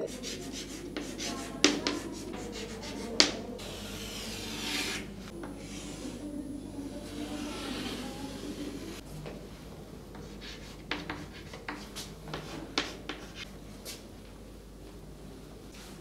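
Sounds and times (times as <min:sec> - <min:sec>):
chalk writing on chalkboard: 0:00.1 - 0:06.2, 0:07.0 - 0:09.0, 0:10.1 - 0:14.0.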